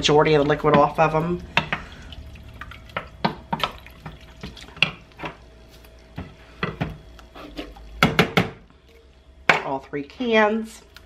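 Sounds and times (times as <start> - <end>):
wooden spoon scraping metal pot: 7.3 - 7.8.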